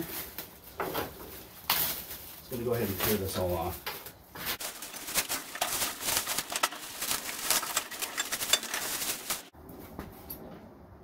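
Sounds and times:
plastic wrap crinkling: 0:04.4 - 0:09.5.

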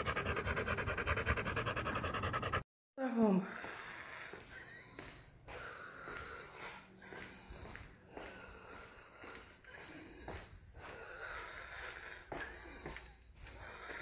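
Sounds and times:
woman wheezy laboured breathing: 0:03.3 - 0:14.0.

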